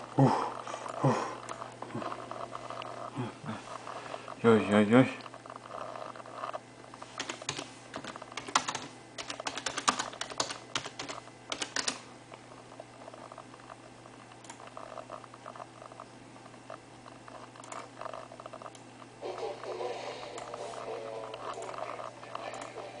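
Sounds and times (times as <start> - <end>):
computer keyboard typing: 7.2 - 12.1.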